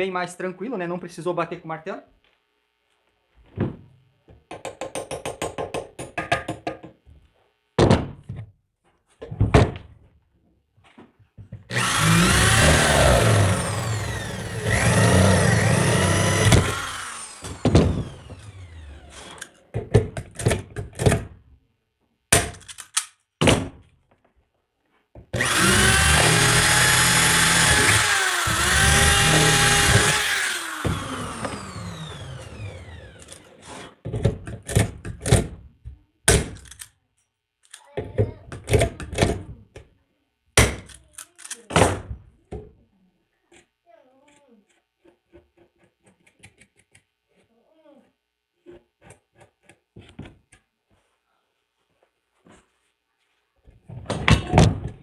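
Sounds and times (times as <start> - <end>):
tools clicking and knocking: 4.4 - 7.0, 22.3 - 23.3, 34.1 - 35.6, 36.3 - 39.9, 40.6 - 41.8
electric drill drilling into metal: 11.7 - 19.6, 25.4 - 33.5.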